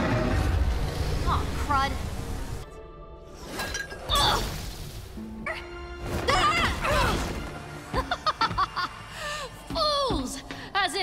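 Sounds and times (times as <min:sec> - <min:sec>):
music: 0:00.0 - 0:11.0.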